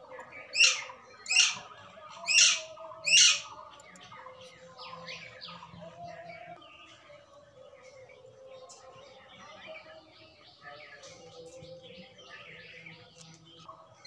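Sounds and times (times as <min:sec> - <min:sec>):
bird calling: 0:00.0 - 0:03.5.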